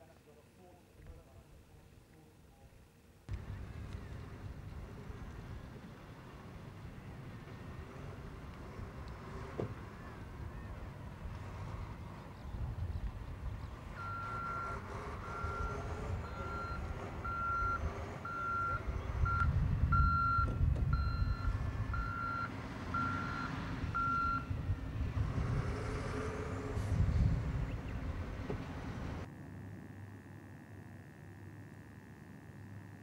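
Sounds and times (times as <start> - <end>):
vehicle engine rumbling: 3.3 - 29.6
reversing alarm beeps: 14.0 - 24.5.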